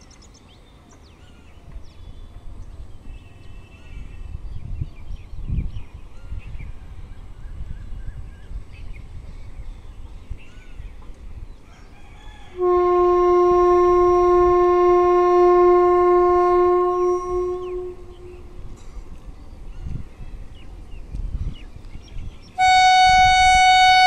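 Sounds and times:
wind rumble on microphone: 1.5s - 24.0s
locomotive horn blast: 12.5s - 18.8s, 22.6s - 24.0s.

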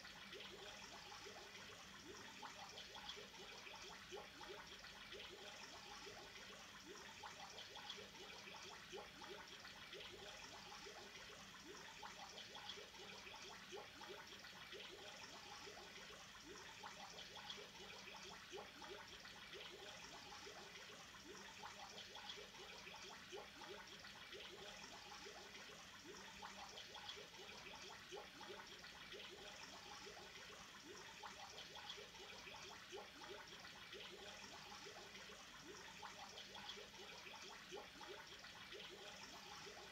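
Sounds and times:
faint steady hum: 0.0s - 39.9s
water bubbling in aquarium: 0.0s - 39.9s.

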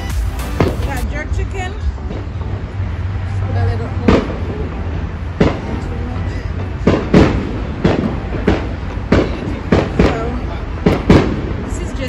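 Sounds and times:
distant fireworks bangs: 4.0s - 4.6s, 5.3s - 12.0s.

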